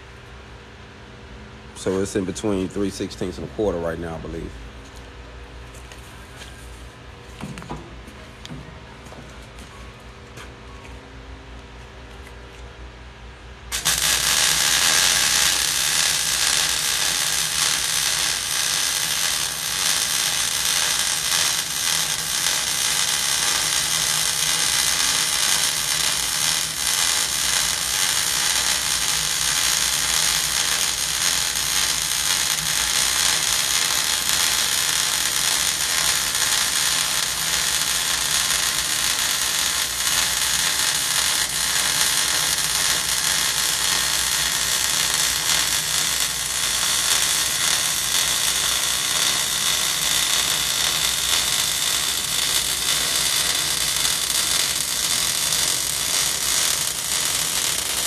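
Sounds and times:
welding arc crackling: 0:13.7 - 0:58.0.

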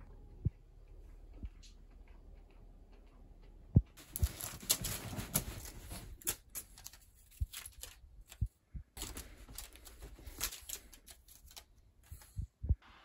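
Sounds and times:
soft low thumps: 0:03.6 - 0:04.4, 0:12.4 - 0:12.8
bedspread rustling and scratching: 0:04.0 - 0:08.4, 0:09.0 - 0:11.6.

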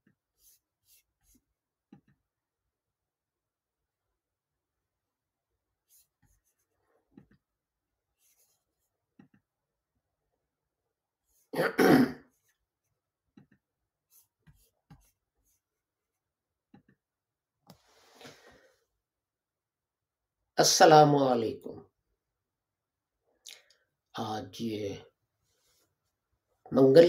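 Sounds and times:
person coughing: 0:11.5 - 0:12.3
soft breath: 0:17.7 - 0:18.9.

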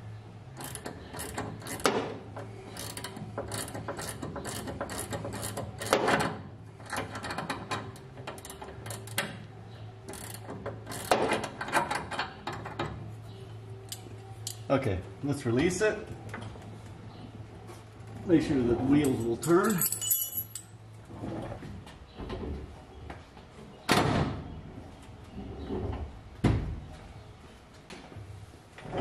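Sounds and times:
ratcheting wrench clicking: 0:00.6 - 0:02.0, 0:02.7 - 0:09.3, 0:10.1 - 0:12.3.

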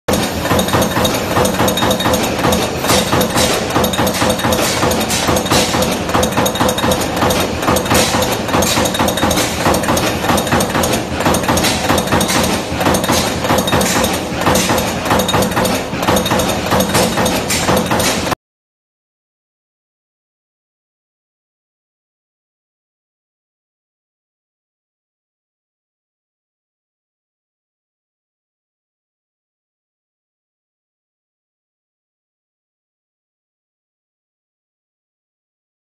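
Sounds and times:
punch press metallic hits: 0:00.1 - 0:18.4.

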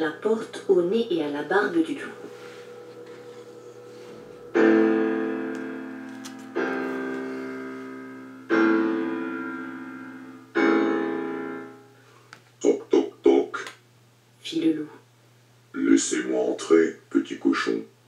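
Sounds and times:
piano chords: 0:00.0 - 0:12.0.

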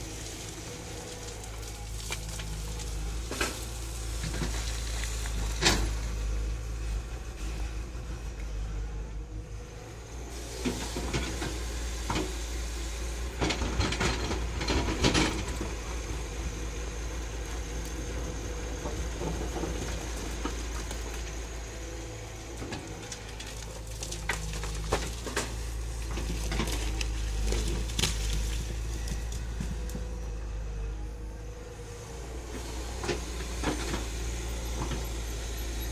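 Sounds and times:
rock and soil sliding: 0:00.0 - 0:07.7, 0:13.5 - 0:30.2
excavator diesel engine running: 0:00.0 - 0:35.9.

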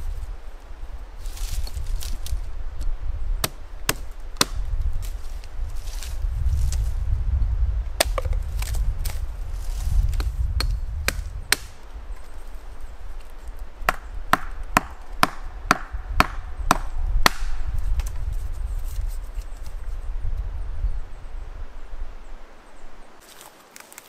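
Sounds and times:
hatchet chopping wood: 0:03.4 - 0:04.8, 0:08.0 - 0:09.2, 0:10.1 - 0:11.8, 0:13.9 - 0:18.1.

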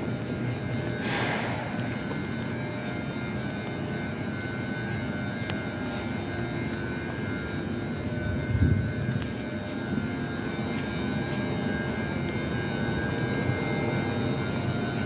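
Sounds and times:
faint high whining tones: 0:00.0 - 0:15.0
train equipment mechanical hum: 0:00.0 - 0:15.0.

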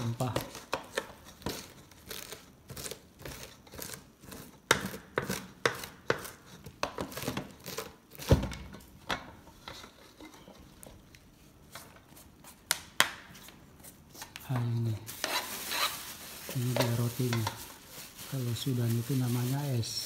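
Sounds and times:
knife chopping on wooden board: 0:02.8 - 0:08.6.

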